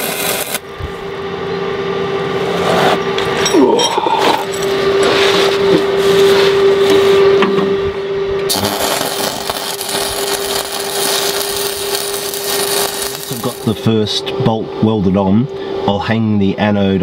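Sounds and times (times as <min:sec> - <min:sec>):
arc welding crackling hiss: 0:00.0 - 0:00.6, 0:08.5 - 0:13.9
steady hum: 0:00.0 - 0:17.0.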